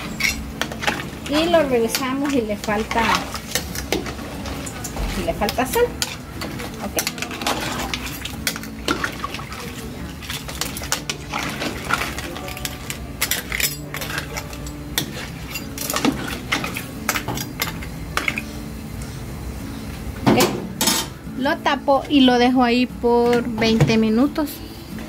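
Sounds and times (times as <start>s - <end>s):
metal spoon scraping a stockpot: 0.0s - 9.4s, 10.3s - 17.9s
liquid sloshing: 0.0s - 18.5s.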